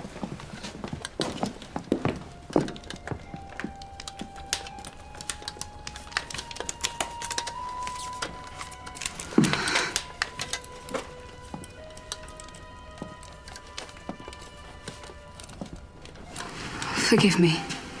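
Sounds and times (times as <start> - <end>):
background music with long notes: 1.2 - 18.0
small clicks and knocks: 2.5 - 16.5.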